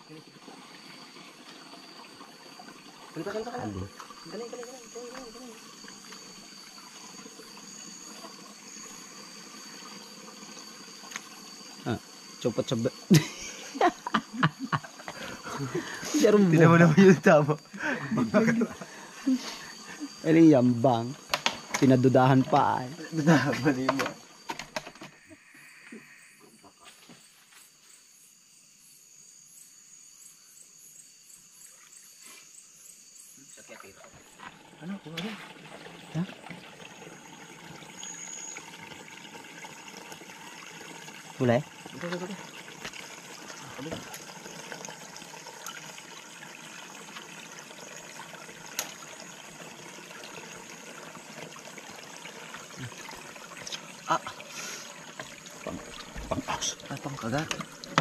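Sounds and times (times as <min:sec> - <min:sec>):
stream trickling: 0:00.0 - 0:26.8, 0:30.2 - 0:58.0
night insects trilling: 0:00.0 - 0:58.0
pulsing insect chirp: 0:00.0 - 0:58.0.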